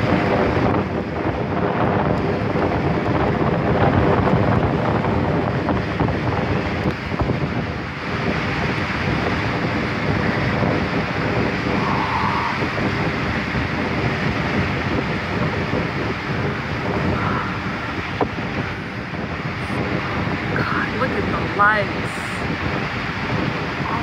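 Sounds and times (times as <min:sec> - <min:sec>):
waves breaking over rocks: 0:00.0 - 0:24.0
wind buffeting microphone: 0:00.0 - 0:24.0.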